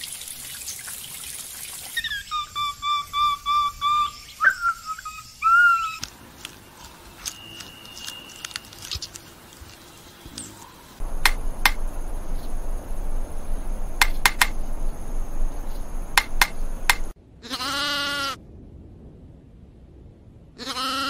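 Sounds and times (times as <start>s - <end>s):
rustling background: 6.0s - 17.2s
woodpecker pecking on tree: 10.6s - 17.1s
goat bleating: 17.4s - 18.4s, 20.6s - 21.0s.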